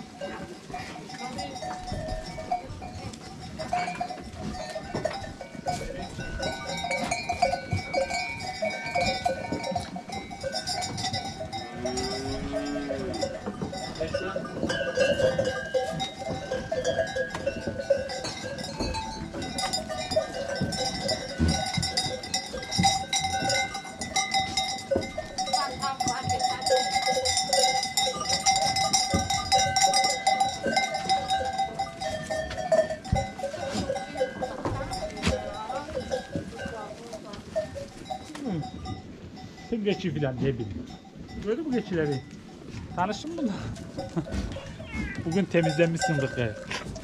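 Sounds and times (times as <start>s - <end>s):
goat bells clanking: 0.0s - 47.0s
goat bleating: 44.2s - 45.4s.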